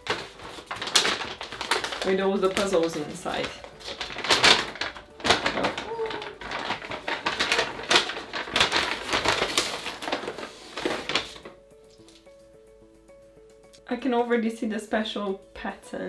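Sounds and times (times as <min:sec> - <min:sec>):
paper bag crinkling: 0:00.0 - 0:12.3.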